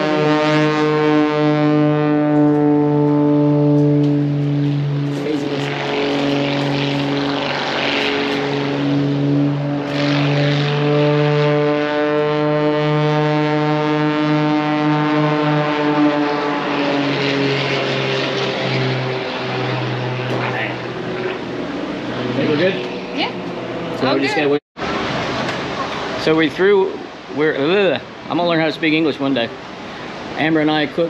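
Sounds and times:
propeller airplane engine drone: 0:00.0 - 0:31.0
rushing air noise: 0:03.8 - 0:24.1, 0:24.8 - 0:31.0.

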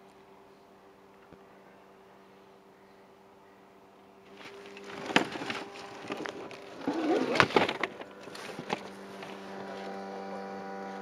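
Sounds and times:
steady low hum: 0:00.0 - 0:11.0
fishing rods knocking and rattling: 0:04.3 - 0:09.4.

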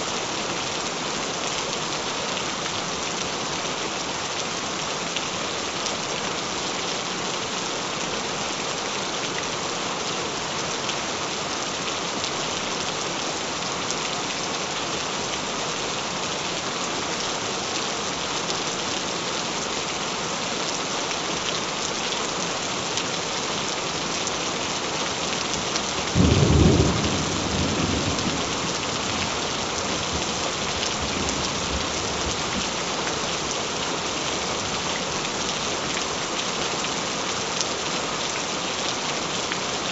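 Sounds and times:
steady rain: 0:00.0 - 0:39.9
thunder rumble: 0:26.2 - 0:29.4.

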